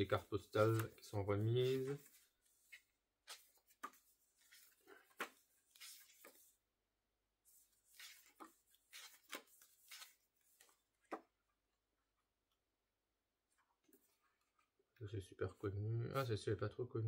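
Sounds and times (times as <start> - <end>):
booklet pages turning: 0.0 - 6.6, 7.5 - 11.3.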